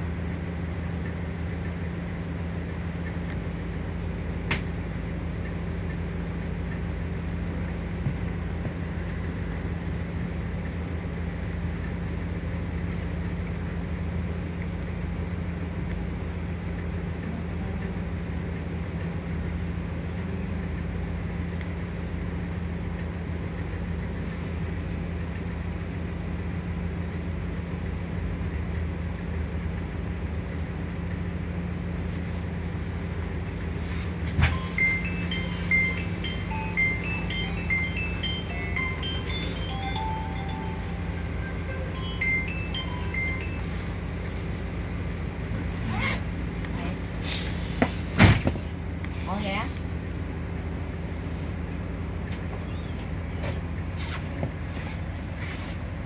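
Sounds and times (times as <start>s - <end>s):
minibus engine idling: 0.0s - 56.0s.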